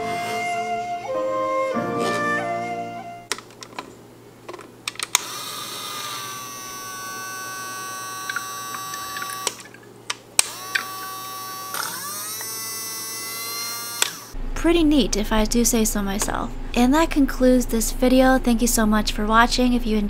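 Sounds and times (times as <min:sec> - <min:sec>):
toy motor whining: 0:05.1 - 0:09.8, 0:10.4 - 0:14.4.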